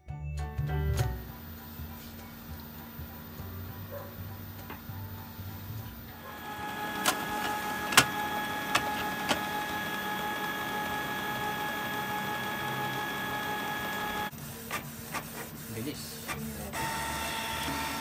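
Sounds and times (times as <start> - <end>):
printer motor whine: 4.4 - 18.0
printer mechanism clicks: 6.6 - 9.8.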